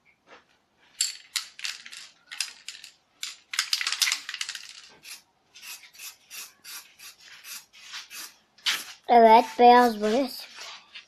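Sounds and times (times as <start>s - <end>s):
spray paint can hissing: 5.0s - 9.0s.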